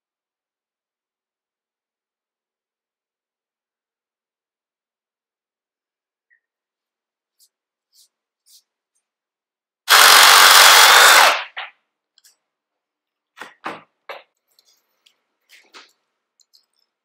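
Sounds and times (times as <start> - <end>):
power tool running: 9.9 - 11.5.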